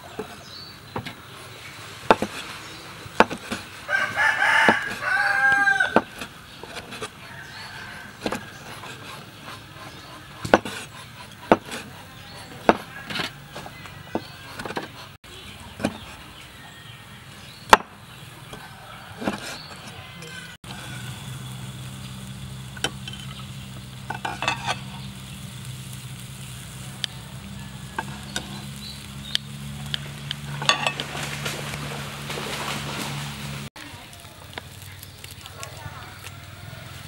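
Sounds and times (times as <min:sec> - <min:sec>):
cleaver chopping on wooden board: 0:02.1 - 0:02.4, 0:03.2 - 0:03.6, 0:09.8 - 0:11.9, 0:12.6 - 0:13.3
rooster crowing: 0:03.8 - 0:06.2, 0:07.2 - 0:08.7, 0:18.5 - 0:21.2, 0:26.8 - 0:28.8, 0:36.1 - 0:37.0.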